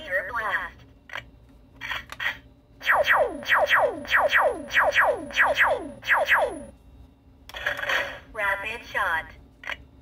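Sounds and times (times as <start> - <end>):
toy laser zaps: 1.9 - 6.7.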